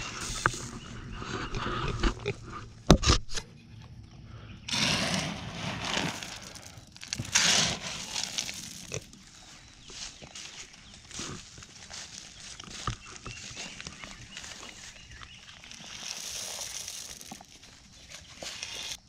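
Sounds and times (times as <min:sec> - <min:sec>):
grain rattling in plastic tub: 0:04.7 - 0:09.1, 0:15.5 - 0:19.0.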